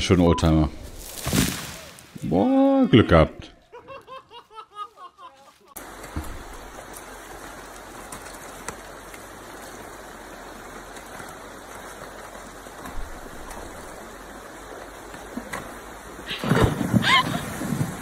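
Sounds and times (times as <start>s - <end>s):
river water rushing: 5.8s - 18.0s.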